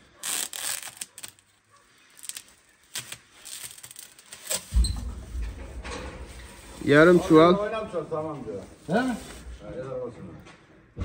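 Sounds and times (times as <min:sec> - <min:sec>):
knife cutting plastic sack: 0:00.2 - 0:01.4, 0:02.2 - 0:04.7.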